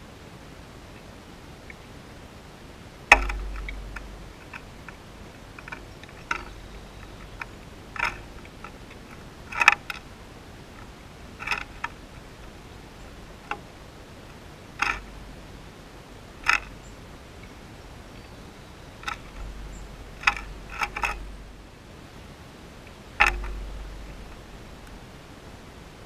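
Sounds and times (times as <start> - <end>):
sharp knock on bird bath: 3.1 - 4.2
bird pecking seed: 3.1 - 21.7, 22.8 - 25.3.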